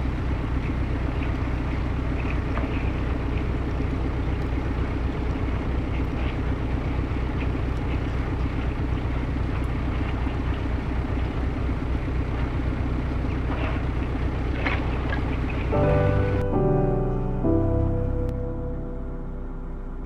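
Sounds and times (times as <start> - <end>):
diesel boat engine running: 0.0 - 20.0
ice crackling against hull: 0.1 - 16.6.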